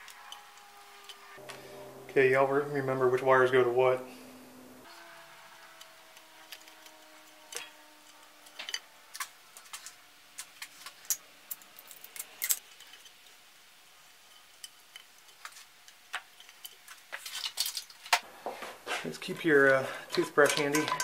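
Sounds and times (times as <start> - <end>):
small metal parts clicking: 0.0 - 1.4, 5.7 - 13.4, 14.2 - 18.2, 20.1 - 21.0.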